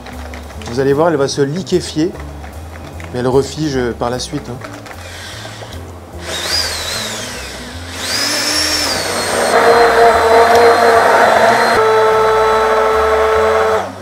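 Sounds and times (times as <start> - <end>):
stick blender whining: 4.9 - 14.0
blade churning cream: 5.0 - 14.0.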